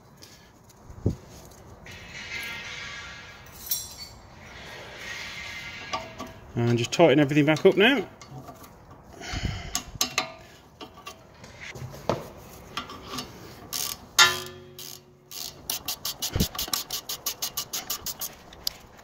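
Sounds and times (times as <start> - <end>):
ratchet wrench clicking: 13.7 - 18.8.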